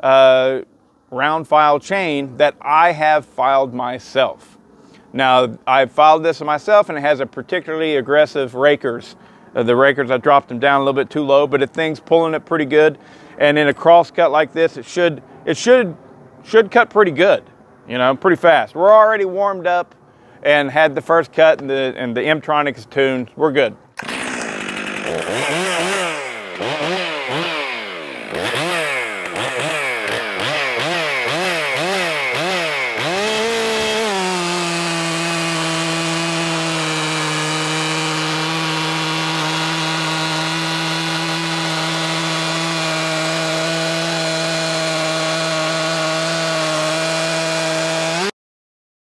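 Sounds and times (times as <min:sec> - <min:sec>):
chainsaw cutting log: 0:24.0 - 0:48.3
chainsaw revving: 0:24.0 - 0:48.3.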